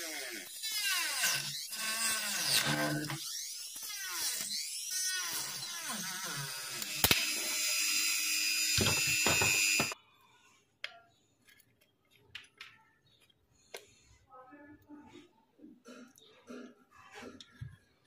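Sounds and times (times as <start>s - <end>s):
rotary tool cutting plastic: 0.0s - 10.0s.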